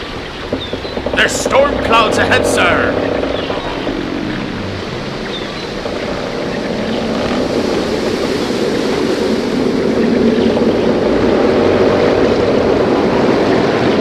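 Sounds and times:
steady rumbling drone: 0:00.0 - 0:14.0.

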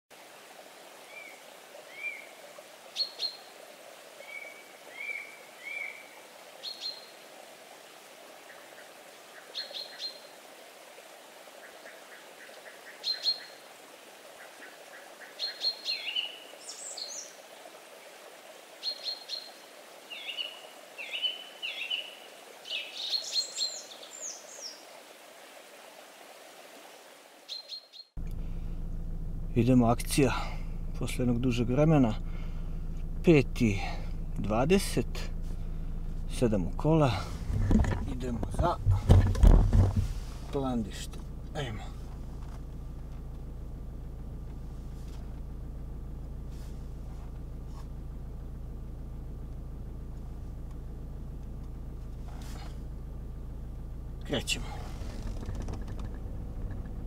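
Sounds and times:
songbirds chirping and trilling: 0:01.0 - 0:03.6, 0:04.2 - 0:07.3, 0:08.4 - 0:10.4, 0:11.6 - 0:13.7, 0:14.4 - 0:17.4, 0:18.8 - 0:24.9, 0:27.5 - 0:28.2.

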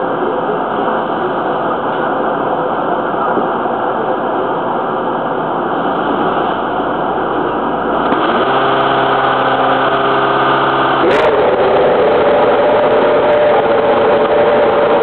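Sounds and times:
rushing air noise: 0:00.0 - 0:15.0
racing car engine: 0:05.6 - 0:15.0.

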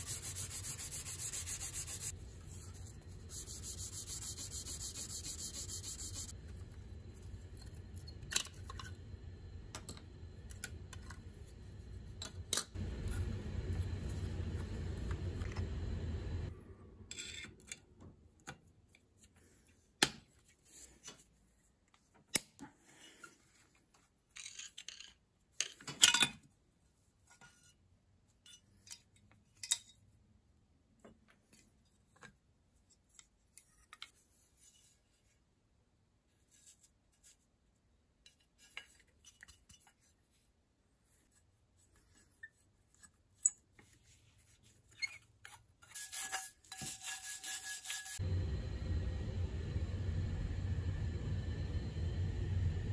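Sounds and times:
steady low noise: 0:12.8 - 0:17.0, 0:48.2 - 0:52.9.

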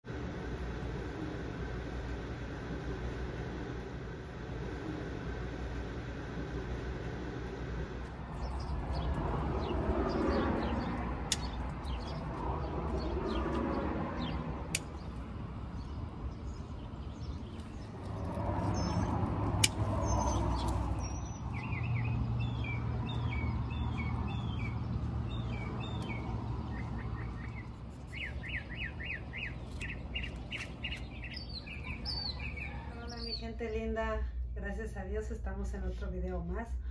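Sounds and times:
low outdoor rumble: 0:00.0 - 0:36.9
small birds chirping: 0:06.7 - 0:33.8
sharp clicks: 0:10.9 - 0:12.2, 0:14.6 - 0:15.1.

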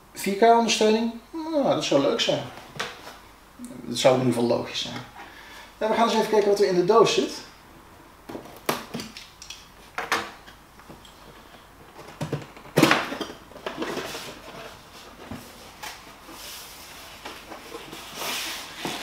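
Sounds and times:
cardboard flaps scraping: 0:12.0 - 0:19.0.

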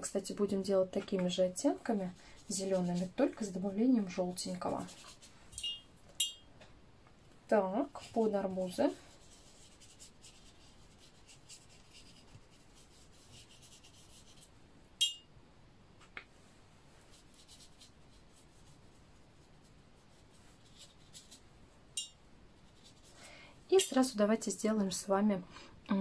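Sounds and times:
brush stroking across paper: 0:01.0 - 0:05.5, 0:07.8 - 0:14.5, 0:16.8 - 0:21.5, 0:22.6 - 0:23.3
sharp clink: 0:05.6 - 0:06.5, 0:15.0 - 0:15.3, 0:22.0 - 0:22.2.

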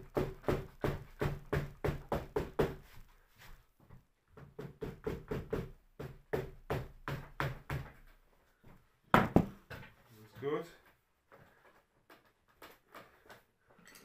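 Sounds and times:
dull knocks on leather: 0:09.1 - 0:09.6.

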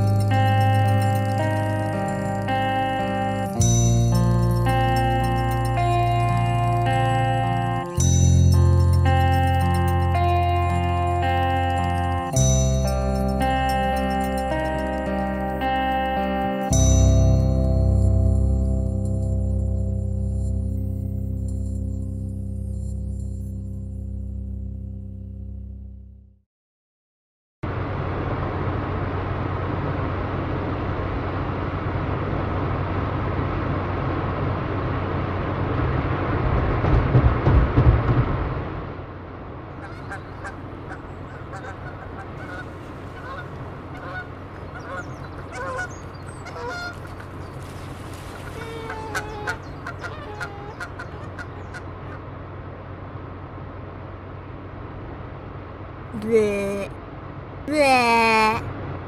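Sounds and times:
car road and engine noise: 0:00.0 - 0:26.0, 0:27.6 - 0:59.0
geese honking: 0:39.8 - 0:52.2.

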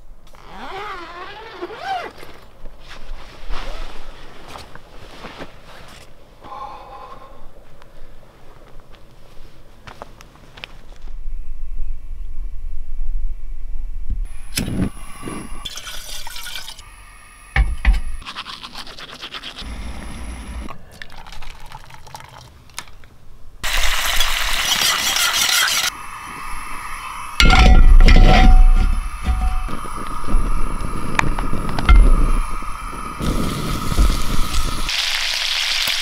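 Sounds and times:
burner and kettle hissing: 0:14.3 - 0:18.2, 0:19.6 - 0:20.7, 0:23.6 - 0:36.0.

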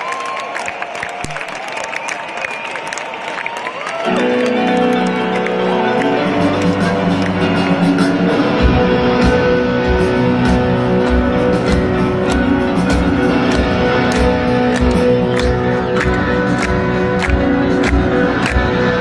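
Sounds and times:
guitar and keyboard chords: 0:04.0 - 0:19.0.

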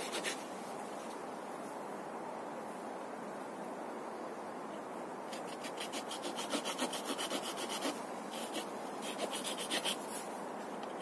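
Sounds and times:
blade sawing tree branch: 0:00.0 - 0:00.5, 0:05.3 - 0:10.3.

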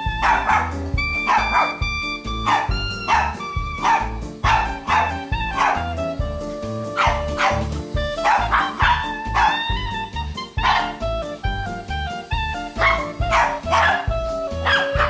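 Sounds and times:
background music with steady beat: 0:00.0 - 0:15.0
small dog barking: 0:00.1 - 0:06.0, 0:07.0 - 0:09.7, 0:10.6 - 0:11.0, 0:12.8 - 0:15.0.

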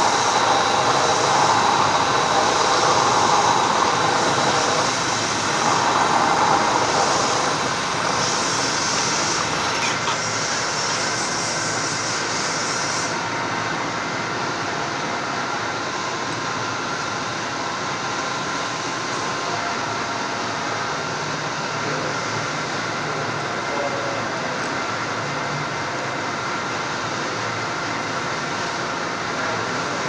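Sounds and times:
milling machine cutting metal: 0:00.0 - 0:20.0.

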